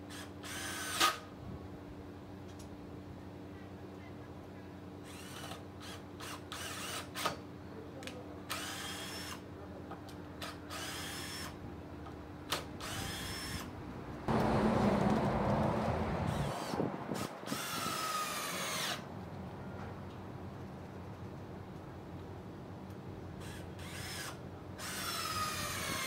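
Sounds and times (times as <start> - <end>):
cordless drill driving a screw: 0.1 - 1.3, 5.1 - 7.4, 8.5 - 9.4, 10.4 - 11.6, 12.5 - 13.7, 16.3 - 19.0, 23.4 - 26.0.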